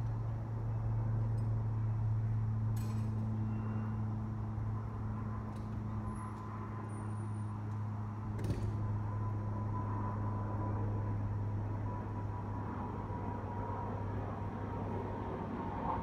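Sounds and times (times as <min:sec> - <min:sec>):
low droning hum: 0:00.0 - 0:16.0.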